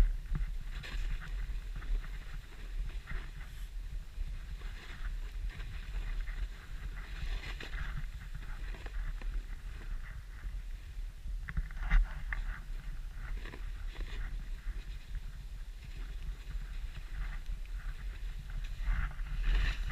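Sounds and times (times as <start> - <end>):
wind rumble on microphone: 0.0 - 19.9
skis sliding through powder snow: 12.1 - 19.9.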